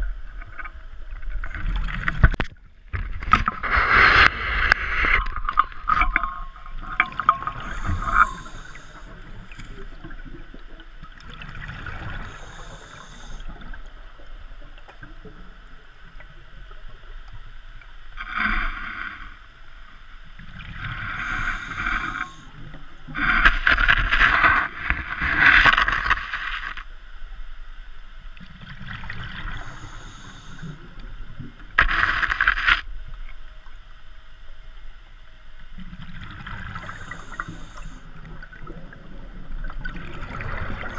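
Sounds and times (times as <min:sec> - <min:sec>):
underwater regulator bubbling and hiss: 0:03.4 - 0:14.3, 0:20.5 - 0:26.2, 0:29.0 - 0:32.6, 0:36.1 - 0:40.9.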